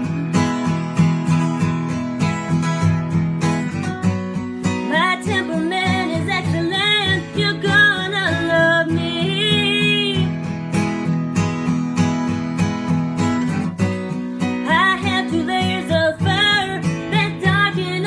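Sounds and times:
woman singing: 0:00.0 - 0:01.1, 0:04.6 - 0:10.4, 0:14.4 - 0:18.0
acoustic guitar strumming: 0:00.0 - 0:18.0.

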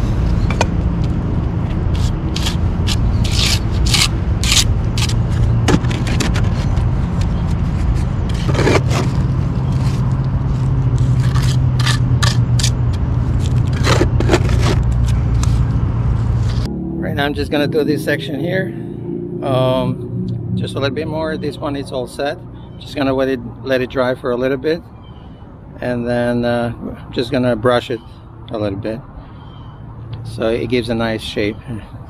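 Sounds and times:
trowel scraping wet concrete: 0:02.0 - 0:06.8, 0:07.8 - 0:15.6.

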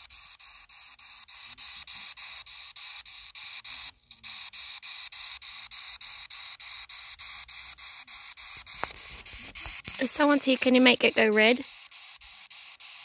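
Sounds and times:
radio static hiss chopped: 0:07.8 - 0:13.0.

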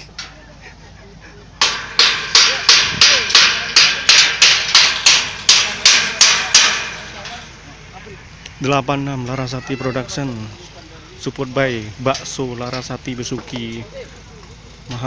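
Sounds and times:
sharp ringing strikes: 0:01.6 - 0:08.9.

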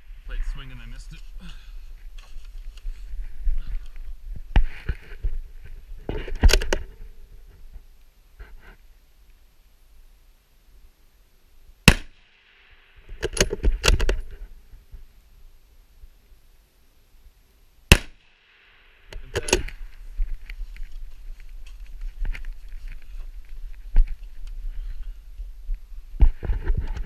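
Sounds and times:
rifle shots: 0:11.8 - 0:14.1, 0:17.9 - 0:19.6
rifle handling noise: 0:13.1 - 0:14.5, 0:19.1 - 0:24.6.

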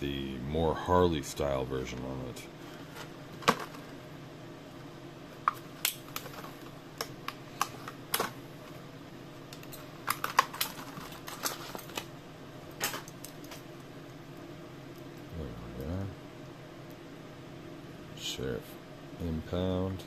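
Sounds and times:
plastic packaging crackling: 0:09.5 - 0:12.1.

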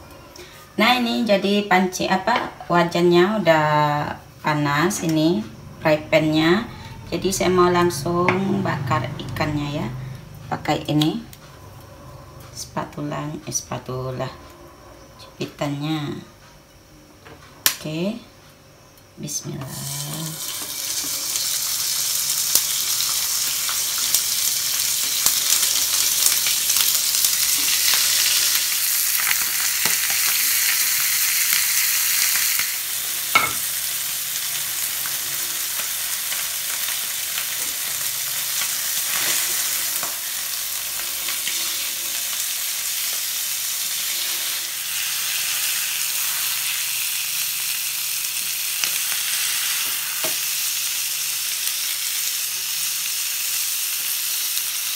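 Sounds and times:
fish sizzling in grill pan: 0:19.6 - 0:54.9.

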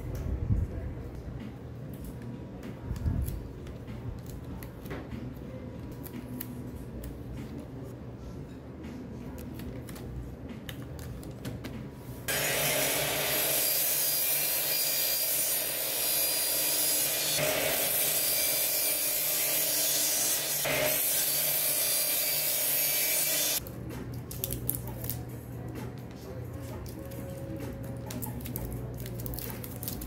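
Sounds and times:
circular saw cutting wood: 0:12.3 - 0:23.6.

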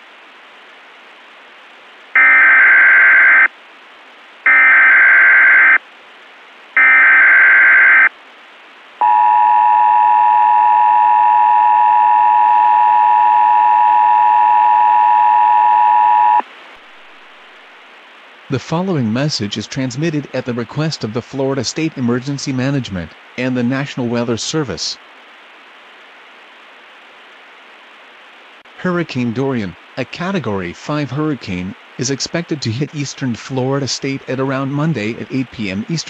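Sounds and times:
steady hiss: 0:00.0 - 0:04.5, 0:05.5 - 0:06.8, 0:08.0 - 0:09.0, 0:16.4 - 0:36.0
buzzing data bursts: 0:02.2 - 0:03.5, 0:04.5 - 0:05.8, 0:06.8 - 0:08.1
two-tone attention signal: 0:09.0 - 0:16.4.

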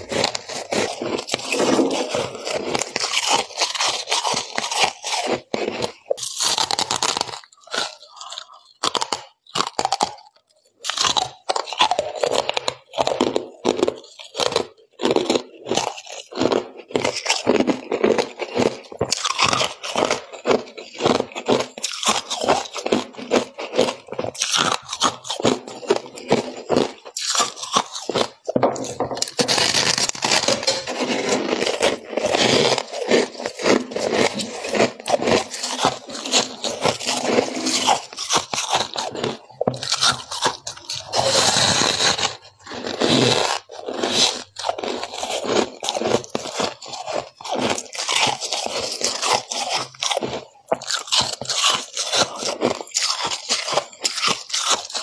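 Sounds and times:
ice scraping: 0:00.0 - 0:08.4, 0:25.3 - 0:55.0
ice crunching: 0:00.0 - 0:09.9, 0:13.2 - 0:55.0.

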